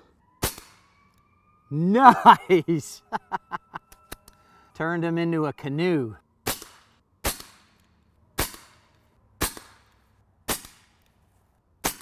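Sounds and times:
suppressed air rifle shots: 8.4s - 11.1s.

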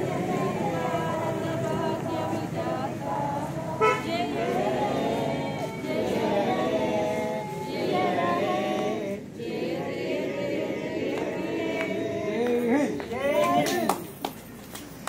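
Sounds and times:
group singing in unison: 0.0s - 13.1s.

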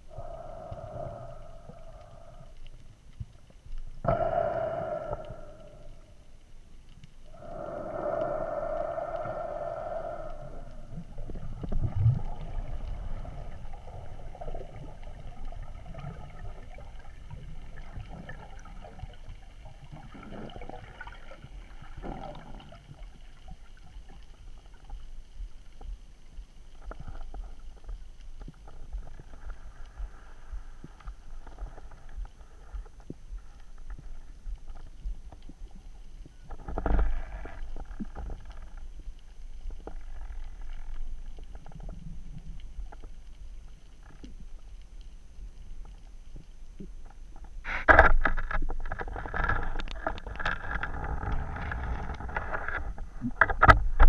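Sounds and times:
small crackles and clicks: 0.0s - 54.0s
underwater rumble of water: 0.0s - 54.0s.

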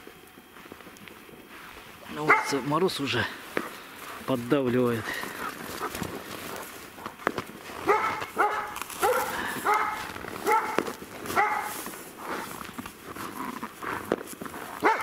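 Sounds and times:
dog yapping: 2.2s - 2.6s, 7.8s - 11.8s, 14.8s - 15.0s.

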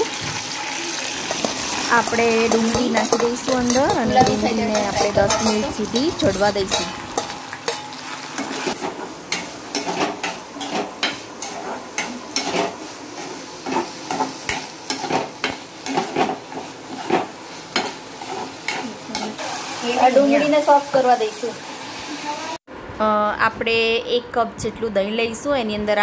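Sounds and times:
onions sizzling in oil: 0.0s - 22.6s
steel spatula scraping a pan: 0.6s - 20.3s.

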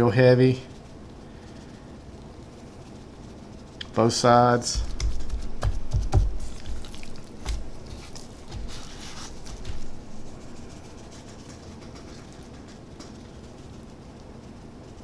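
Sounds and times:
wet slaps of raw meat: 4.8s - 8.7s.

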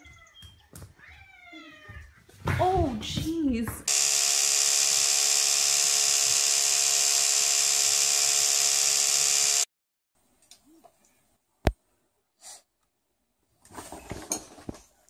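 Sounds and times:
electric toothbrush buzzing: 3.9s - 9.7s.

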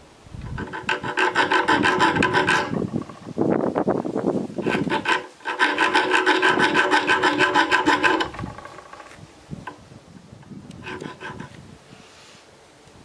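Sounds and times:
hand file rasping on steel: 0.4s - 3.2s, 4.6s - 9.0s, 10.8s - 11.6s.

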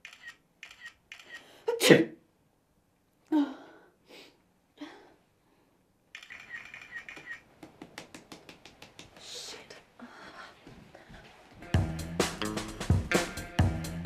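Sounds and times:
phone camera shutter clicking: 0.0s - 1.4s, 6.2s - 7.4s.

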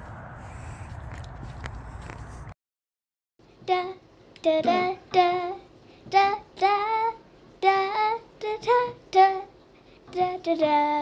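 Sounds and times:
child singing: 3.6s - 11.0s.

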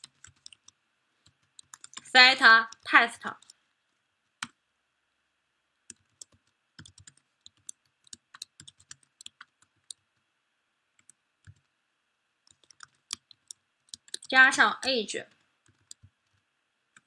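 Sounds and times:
typing on a keyboard: 0.0s - 2.1s, 5.9s - 10.0s, 11.0s - 11.7s, 12.5s - 14.3s, 15.3s - 17.0s.

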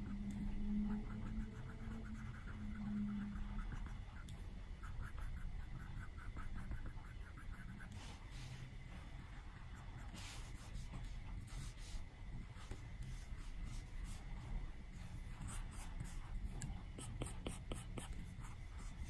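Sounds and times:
stylus scratching on glass screen: 0.0s - 4.3s.

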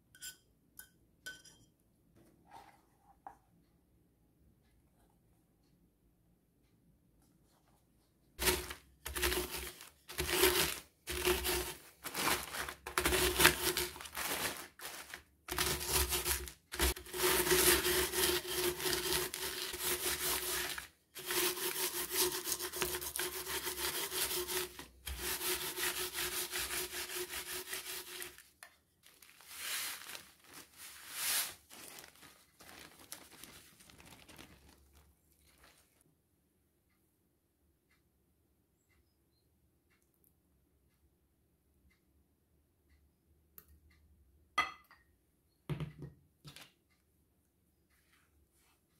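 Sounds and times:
crumbs crunching: 8.4s - 20.9s, 29.0s - 36.0s
plastic bag rustling: 8.4s - 21.7s, 27.0s - 36.0s.

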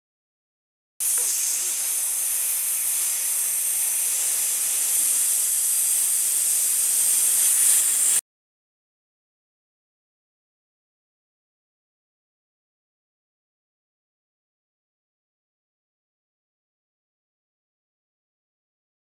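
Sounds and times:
frying pan sizzle: 1.0s - 8.2s.

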